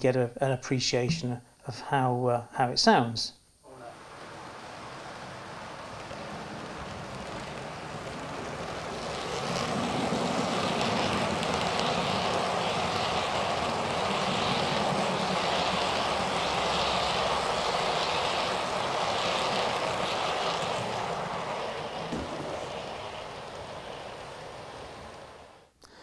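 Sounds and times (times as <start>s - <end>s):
model train wheels on rails: 4.2s - 25.8s.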